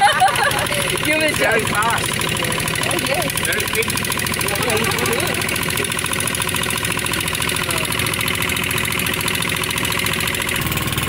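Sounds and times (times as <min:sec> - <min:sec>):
motorboat engine running: 0:00.0 - 0:11.0.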